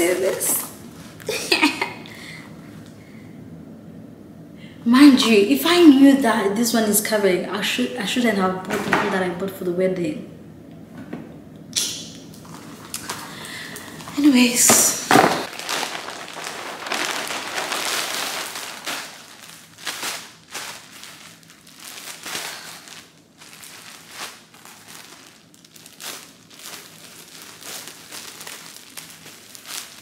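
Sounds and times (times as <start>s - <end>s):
packaging crinkling and rustling: 12.4s - 30.0s.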